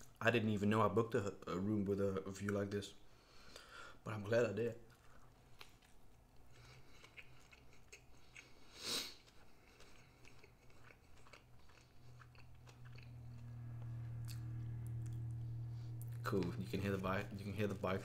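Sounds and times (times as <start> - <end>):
chewing with mouth clicks: 4.9 - 16.6
motorbike engine drone: 13.0 - 18.0.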